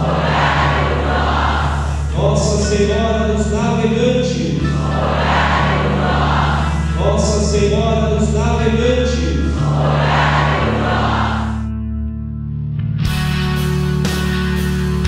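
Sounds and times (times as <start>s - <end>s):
choir singing a hymn: 0.0s - 7.9s, 8.9s - 11.7s
low held accompaniment: 0.0s - 12.6s.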